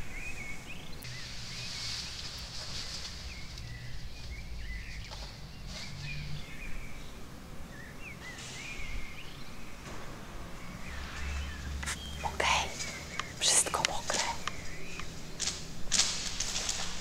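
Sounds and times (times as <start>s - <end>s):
low hum: 0.0s - 17.0s
clothes and bags rustling: 11.8s - 17.0s.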